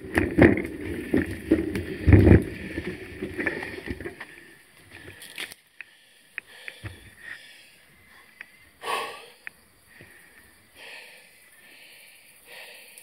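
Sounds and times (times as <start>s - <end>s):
person breathing hard: 2.6s - 13.0s
faint sharp clicks: 4.8s - 7.4s, 9.4s - 10.5s.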